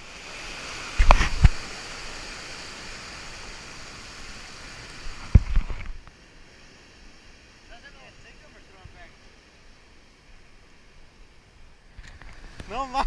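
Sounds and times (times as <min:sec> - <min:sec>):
surf breaking over rocks: 0:00.0 - 0:09.8, 0:11.8 - 0:13.0.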